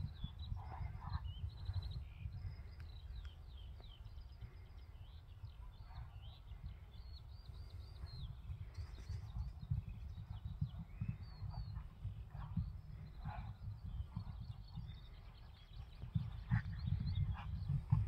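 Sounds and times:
small birds singing: 0:00.0 - 0:18.0
steady low rumble: 0:06.6 - 0:18.0.

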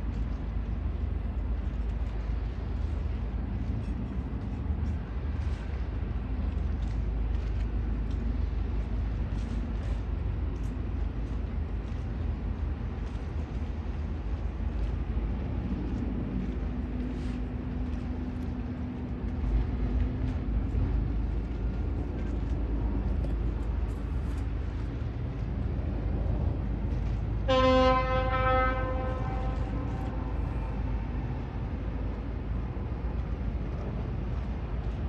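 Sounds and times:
steady low rumble: 0:00.0 - 0:35.0
ship horn blast: 0:27.4 - 0:31.2.

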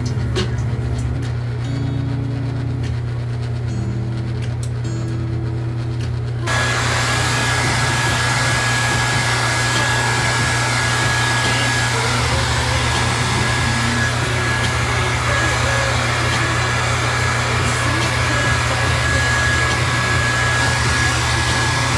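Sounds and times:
hair dryer running: 0:06.4 - 0:21.9.

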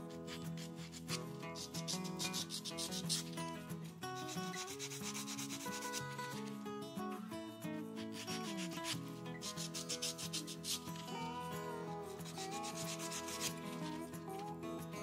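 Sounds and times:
nail buffer rubbing fingernail: 0:00.0 - 0:06.5, 0:08.0 - 0:14.6
background music: 0:07.6 - 0:15.0.

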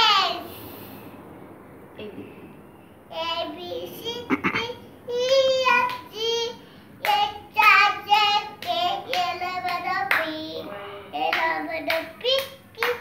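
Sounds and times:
child singing: 0:00.0 - 0:00.5, 0:03.1 - 0:13.0
child clapping: 0:05.2 - 0:06.2, 0:07.0 - 0:10.6, 0:11.2 - 0:13.0.

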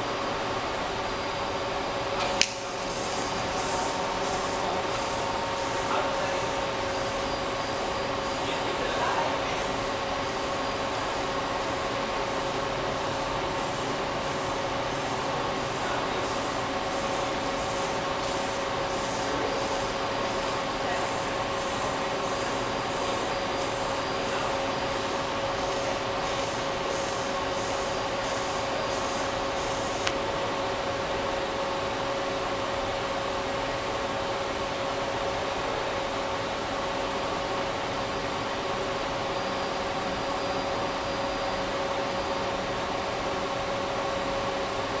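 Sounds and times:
steady machine hum: 0:00.0 - 0:45.0
welder click: 0:02.2 - 0:03.4
welding arc pulsing hiss: 0:02.2 - 0:30.2.

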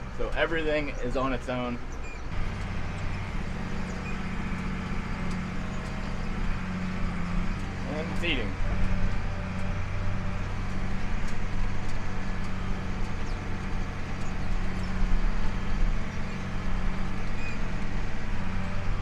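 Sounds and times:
baler machinery: 0:00.0 - 0:19.0
tractor engine running: 0:00.0 - 0:19.0.

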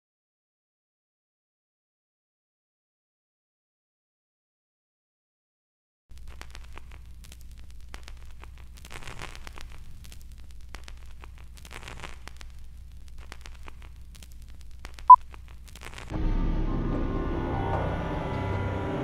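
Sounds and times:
film crackles and clicks: 0:06.1 - 0:16.1.

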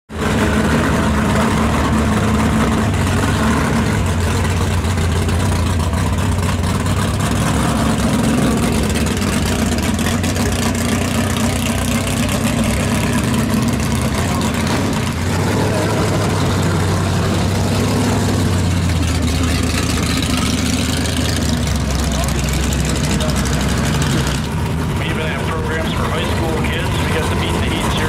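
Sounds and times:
big engine idling: 0:00.1 - 0:28.0.

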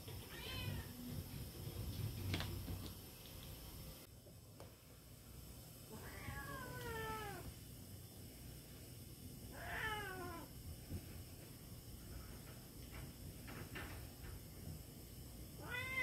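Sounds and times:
cat meowing: 0:15.6 - 0:16.0.

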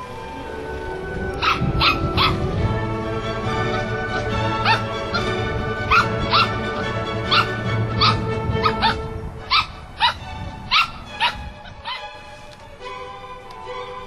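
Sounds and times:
background music: 0:00.0 - 0:14.0
puppy barking: 0:01.4 - 0:02.4, 0:04.6 - 0:06.7, 0:07.3 - 0:12.2.

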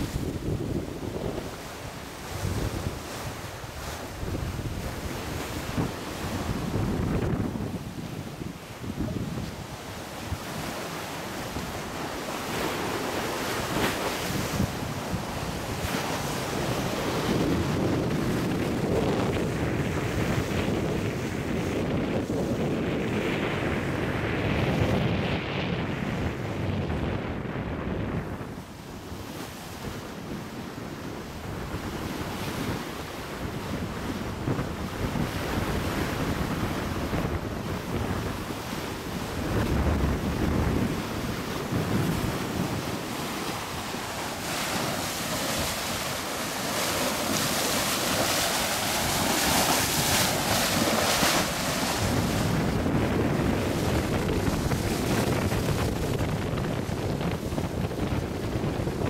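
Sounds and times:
water rushing along hull: 0:00.0 - 0:59.0
wind buffeting microphone: 0:00.0 - 0:59.0.

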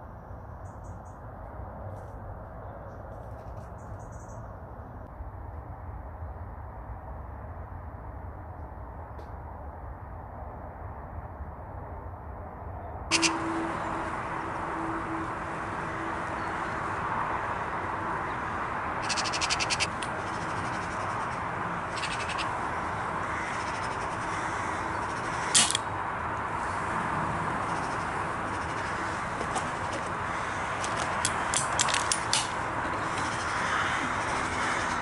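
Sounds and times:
wind: 0:00.0 - 0:35.0
magpies chattering: 0:13.1 - 0:26.0, 0:26.6 - 0:35.0
air rifle shot: 0:25.5 - 0:25.9.

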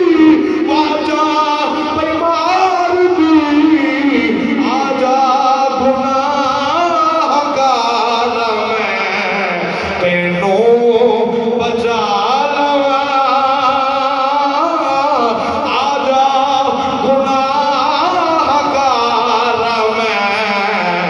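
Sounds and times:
man singing devotional verse: 0:00.0 - 0:21.0.

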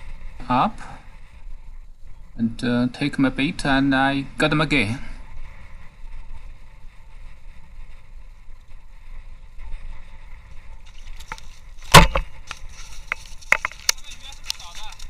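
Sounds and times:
loud sharp knock: 0:11.9 - 0:12.3.

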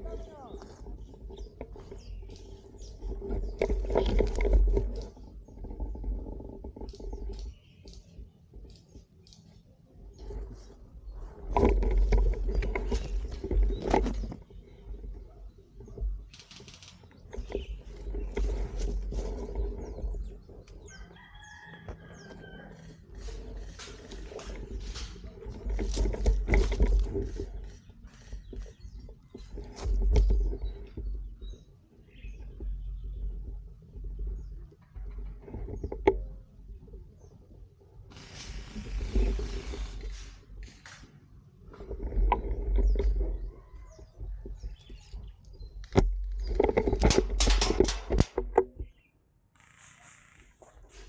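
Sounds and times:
wind on microphone: 0:00.0 - 0:09.2, 0:09.9 - 0:16.4, 0:17.2 - 0:49.1
rustling and clicks: 0:00.0 - 0:37.4, 0:38.0 - 0:49.0
rooster crowing: 0:20.9 - 0:23.0.

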